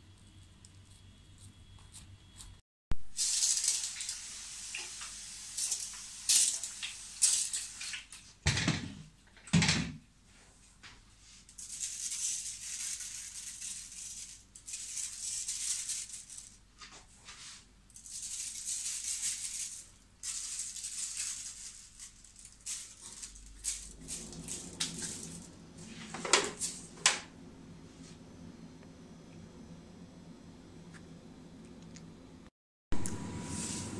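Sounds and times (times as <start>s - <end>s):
seeds falling with dry hiss: 3.1s - 8.0s, 11.4s - 27.0s.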